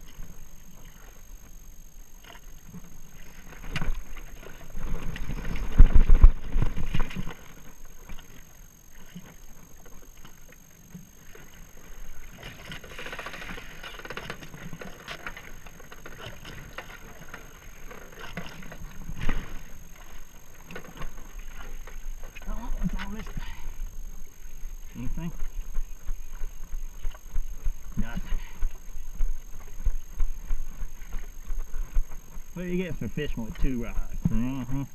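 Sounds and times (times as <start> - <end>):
water lapping against hull: 0.0 - 34.9
knocks and rustles of handling fish: 2.2 - 8.4, 9.0 - 23.5.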